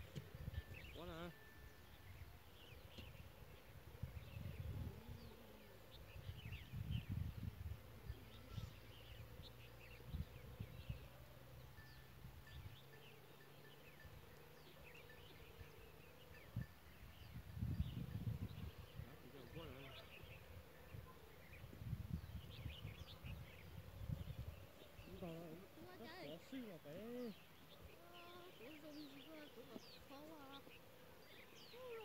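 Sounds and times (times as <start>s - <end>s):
wind rumbling on microphone: 1.8s - 11.1s, 16.4s - 26.0s.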